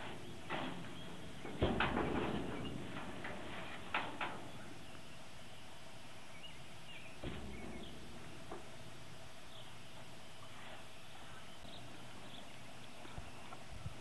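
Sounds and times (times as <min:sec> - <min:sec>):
horse thumping in trailer: 0:00.0 - 0:04.9, 0:07.2 - 0:08.9.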